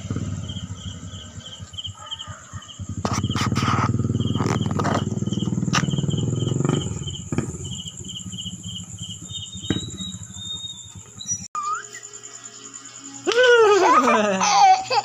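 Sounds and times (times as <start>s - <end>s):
low motor-like drone: 0.0s - 11.5s
crickets chirping: 0.0s - 15.0s
high insect trill: 0.0s - 15.0s.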